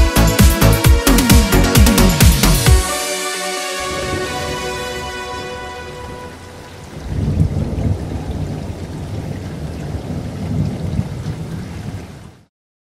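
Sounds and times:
held synth chord: 0.0 - 7.1
rain falling: 0.6 - 12.5
rolling thunder: 3.8 - 12.3.

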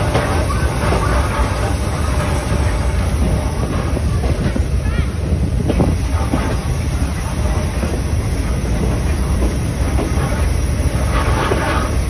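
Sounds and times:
diesel train engine rumble: 0.0 - 12.0
train wheels on rails: 0.0 - 12.0.

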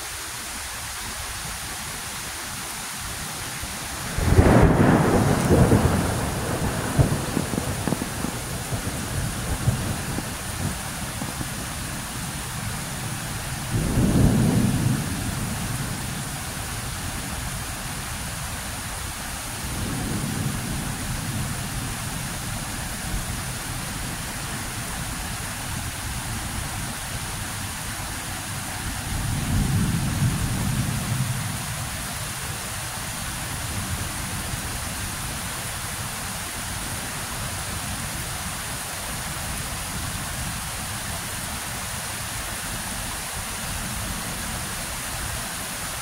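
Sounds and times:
steady rain: 0.0 - 46.0
thunder rumbling: 4.0 - 17.4, 19.6 - 27.9, 28.5 - 31.8.

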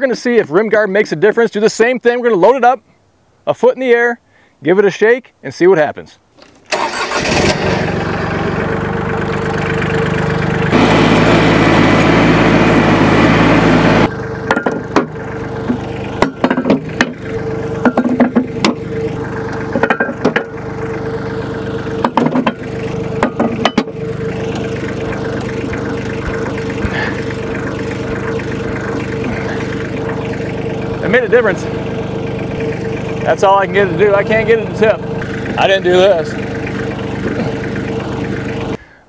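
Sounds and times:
tractor engine revving and idling: 6.4 - 38.8
metal weights knocking and clanking: 14.5 - 15.2, 16.2 - 17.2, 17.8 - 18.8, 19.7 - 20.6, 23.2 - 24.0.

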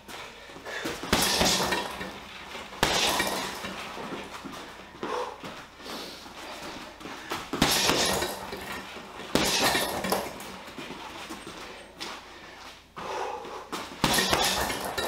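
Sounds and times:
punches on heavy bag: 0.8 - 2.2, 2.8 - 4.3, 7.5 - 10.6, 14.0 - 15.0
punching bag rattle: 0.8 - 4.5, 7.5 - 12.0, 14.0 - 15.0.

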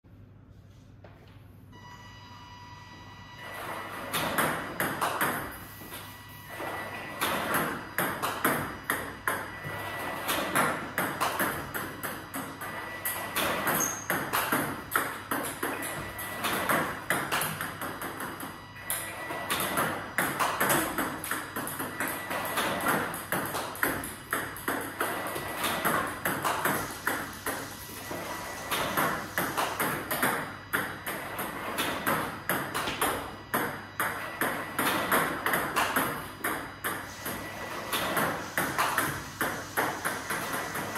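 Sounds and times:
table tennis balls clicking: 13.4 - 27.7, 28.7 - 40.9.

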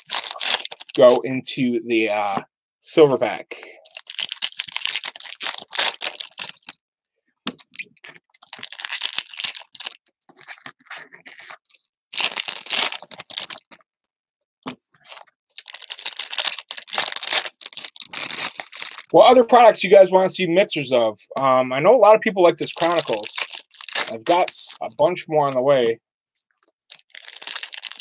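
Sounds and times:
wrappers tearing and crinkling: 0.0 - 1.2, 3.8 - 6.8, 7.6 - 13.8, 15.0 - 19.1, 22.6 - 24.8, 26.9 - 28.0.

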